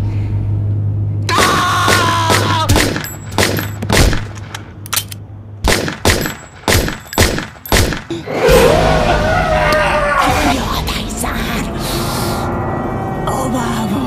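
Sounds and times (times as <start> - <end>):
sharp bangs: 1.3 - 8.7.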